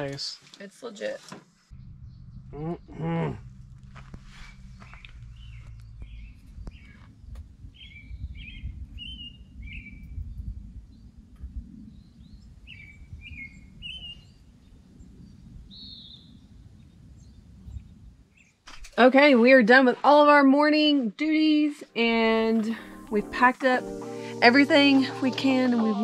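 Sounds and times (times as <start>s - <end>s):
low uneven rumble: 1.7s - 13.8s.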